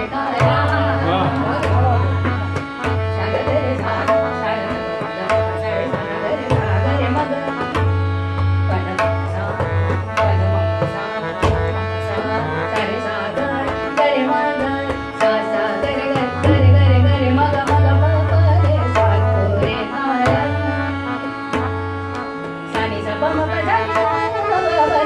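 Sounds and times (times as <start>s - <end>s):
woman singing ornamented phrases: 0.0s - 7.6s
tabla drum strokes: 0.0s - 20.6s
held accompaniment notes: 0.0s - 25.0s.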